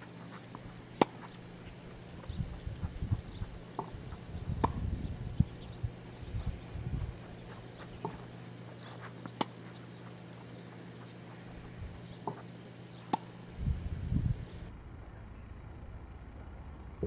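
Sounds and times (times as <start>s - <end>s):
tennis ball being struck: 0.5s - 1.4s, 2.8s - 4.9s, 7.1s - 9.7s, 12.2s - 12.5s, 13.1s - 13.3s
low rumble: 1.4s - 8.2s, 13.6s - 17.0s.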